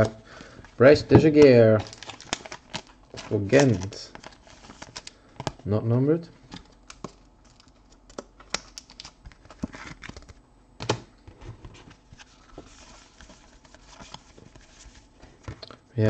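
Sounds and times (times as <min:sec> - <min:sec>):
cards sliding rustle: 0:11.3 - 0:15.6.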